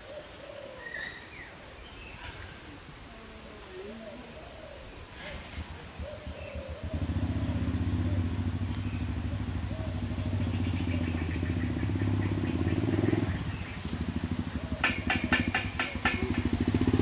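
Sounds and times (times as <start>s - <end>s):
engine running with low pulsing: 5.4s - 17.0s.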